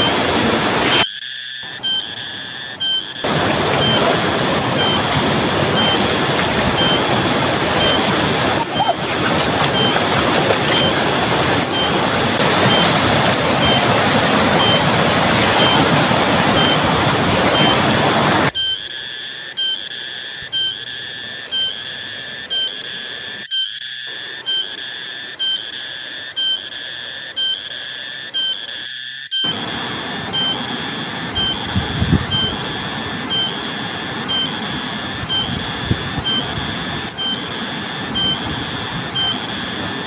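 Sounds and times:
high pulsing whistling call: 1.8 - 18.8, 29.4 - 40.0
fast river rushing: 3.2 - 18.5.

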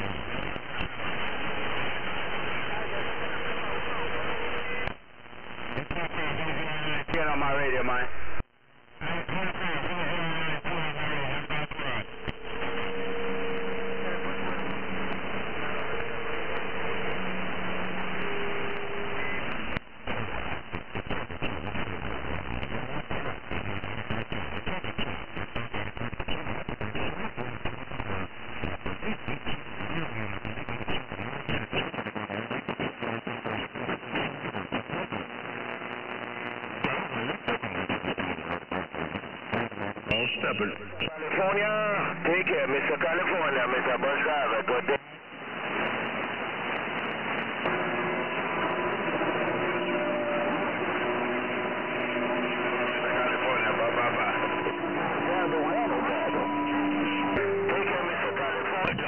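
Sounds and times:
crackling clicks: 0.0 - 1.2, 4.8 - 7.2, 8.4 - 40.8, 44.6 - 47.8
radio static hiss: 0.0 - 59.0.

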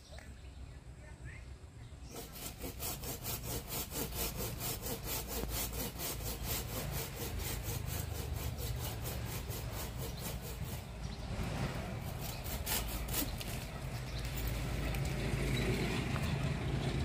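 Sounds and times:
hand saw cutting branch: 2.1 - 15.2.

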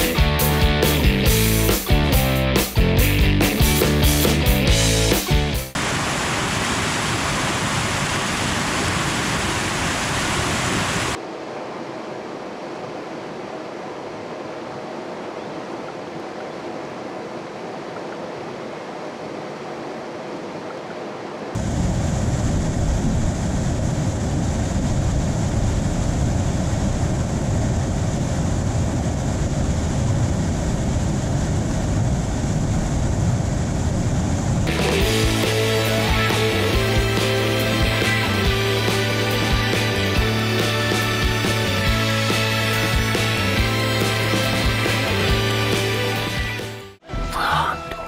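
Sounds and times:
whitewater roaring through rapids: 5.8 - 21.6.

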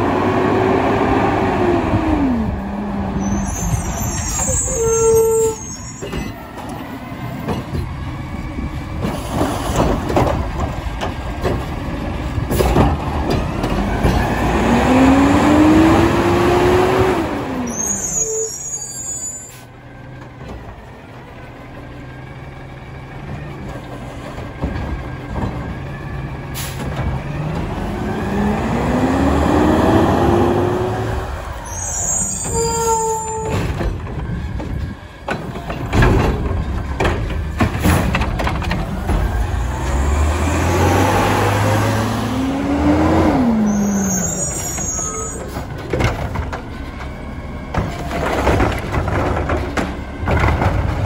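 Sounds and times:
garbage truck engine accelerating: 0.0 - 51.0
air brake hiss: 26.6 - 26.8.

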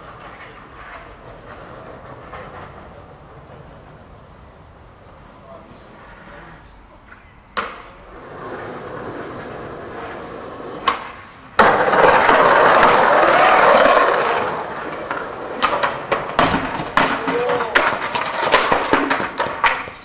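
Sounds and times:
skateboard clacks: 0.0 - 4.3, 7.0 - 20.0
skateboard trucks grinding on handrail: 0.0 - 20.0
skateboard wheels rolling on concrete: 0.0 - 20.0
skateboard tail pop: 7.5 - 7.9, 10.8 - 13.1, 15.0 - 20.0.

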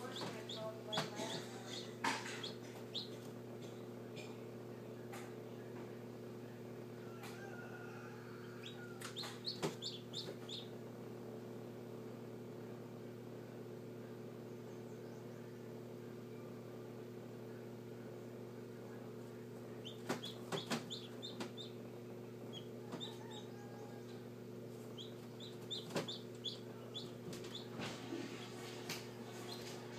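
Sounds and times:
chick peeping: 0.0 - 3.3, 8.4 - 10.8, 19.7 - 29.9
incubator fan hum: 0.0 - 29.9.

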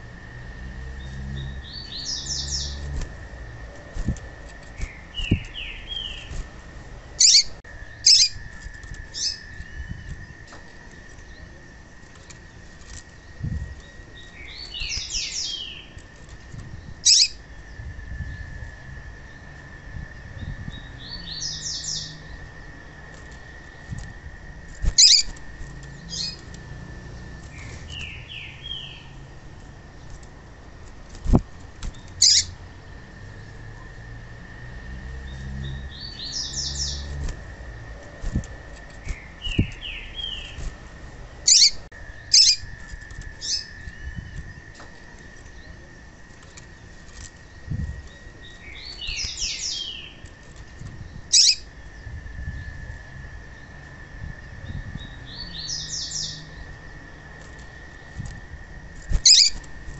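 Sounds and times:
bird chirping: 0.9 - 6.4, 7.1 - 10.4, 13.2 - 16.0, 16.7 - 18.4, 20.4 - 22.6, 24.8 - 29.2, 31.9 - 33.6, 35.2 - 37.2, 38.0 - 40.7, 41.4 - 44.7, 47.4 - 50.3, 51.0 - 52.8, 54.6 - 57.1, 59.1 - 59.7
sharp bird chips: 3.8 - 6.5, 14.0 - 16.1, 24.8 - 26.6, 31.2 - 32.6, 38.1 - 40.8, 41.4 - 44.6, 47.5 - 50.4, 51.1 - 51.8, 58.9 - 59.9.

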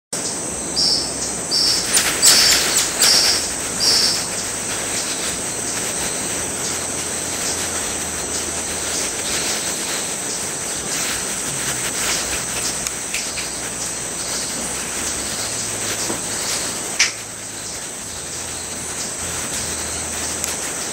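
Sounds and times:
insects droning: 0.2 - 20.9
tamarins chirping: 0.2 - 20.9.

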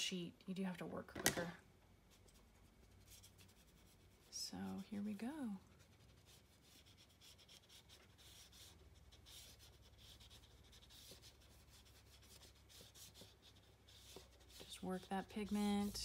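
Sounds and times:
brush rubbing on paper: 2.1 - 16.0.

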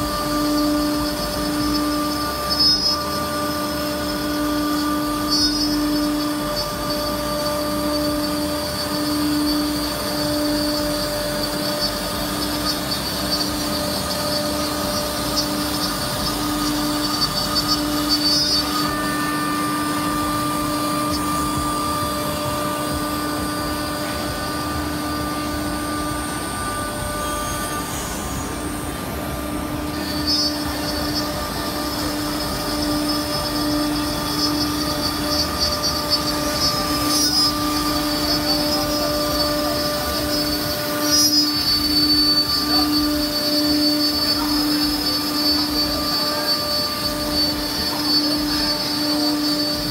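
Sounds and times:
router spindle machine tone: 0.0 - 49.9.

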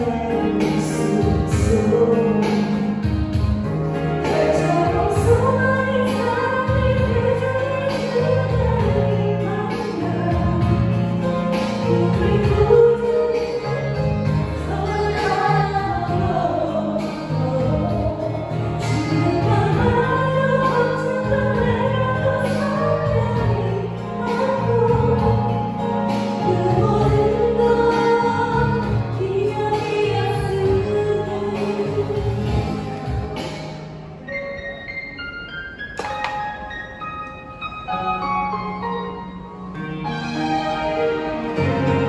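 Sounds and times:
two women singing a ballad: 0.0 - 33.1
instrumental accompaniment: 0.0 - 42.0.

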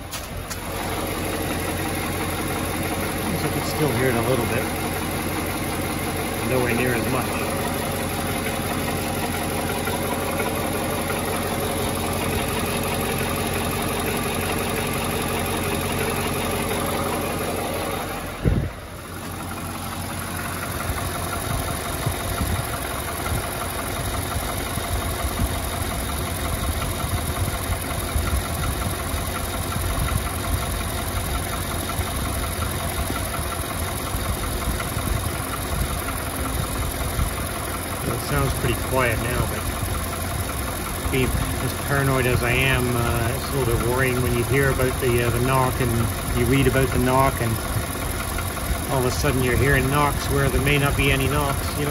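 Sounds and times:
engine idling: 0.0 - 51.9
sharp thump: 18.4 - 18.7.

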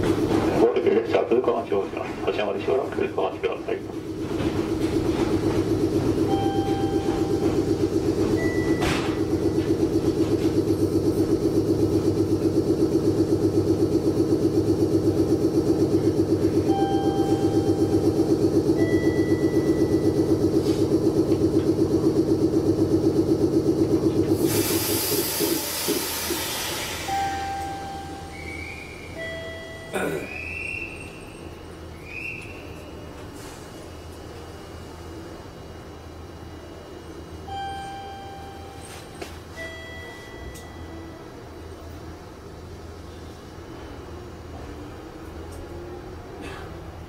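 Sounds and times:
electric train pulsing hum: 0.0 - 47.0
air hissing: 24.2 - 29.2.

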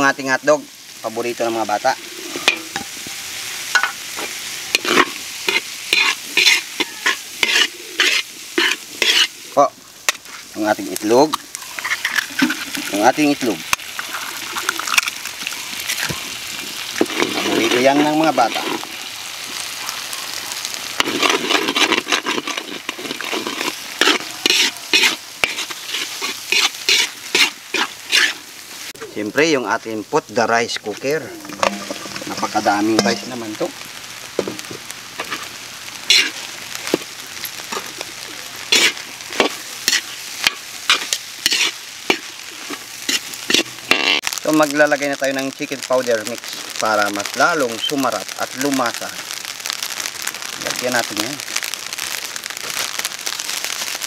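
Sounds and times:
food sizzling in a wok: 0.0 - 54.0
spatula scraping wok: 1.7 - 13.0, 13.6 - 19.6, 21.0 - 29.0, 30.7 - 33.6, 34.4 - 44.3.

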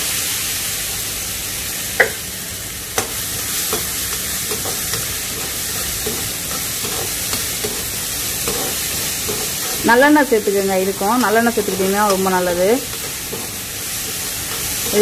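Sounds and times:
shallots sizzling in oil: 0.0 - 15.0.

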